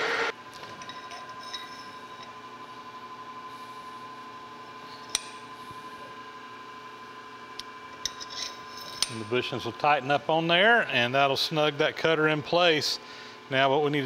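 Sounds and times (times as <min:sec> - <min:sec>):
steady machine hum: 0:00.0 - 0:14.0.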